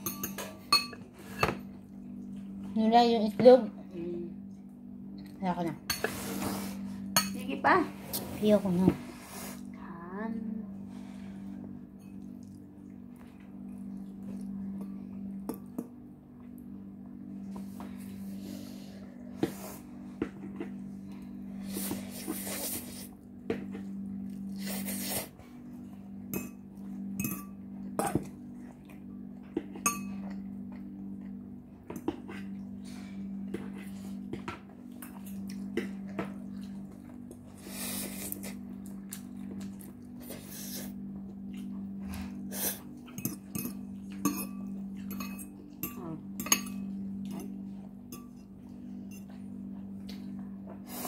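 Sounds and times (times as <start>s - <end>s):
fork clinking against bowl: 0.0s - 1.5s, 27.2s - 27.6s, 43.2s - 46.8s
steady low hum: 0.0s - 51.0s.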